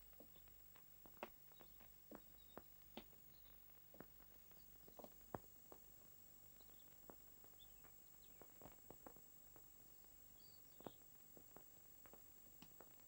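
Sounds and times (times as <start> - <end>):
faint irregular ticks: 0.0 - 13.0
film soundtrack hiss: 0.0 - 13.0
faint high chirps: 10.2 - 11.0.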